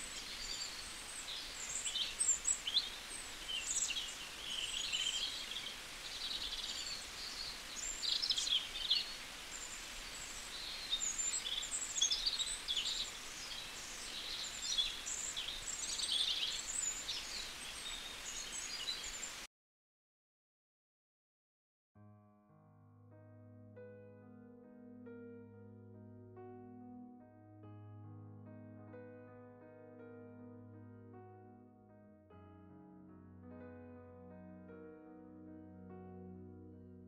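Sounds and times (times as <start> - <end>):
birds chirping: 0.0 - 19.5
faint outdoor hiss: 0.0 - 19.5.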